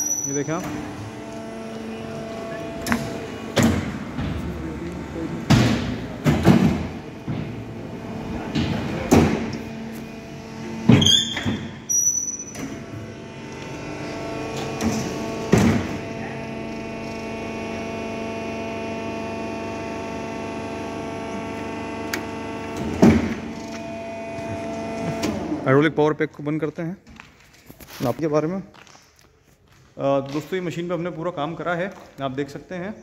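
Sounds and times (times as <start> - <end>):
hydraulic power pack hum: 0.0 - 25.9
heavy press clanks and thuds: 5.4 - 7.8.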